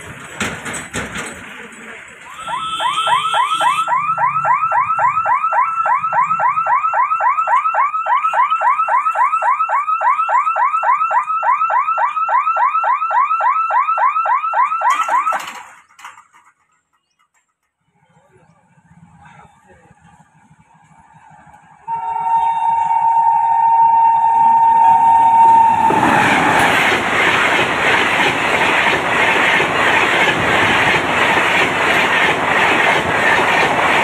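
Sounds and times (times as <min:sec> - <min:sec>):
level crossing alarm chirping: 0:02.3 - 0:15.5.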